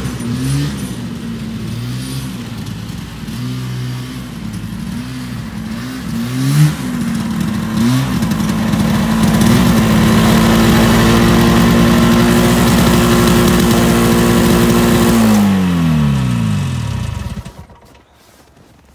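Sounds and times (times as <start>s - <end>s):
snowmobile engine revving: 0.0s - 18.9s.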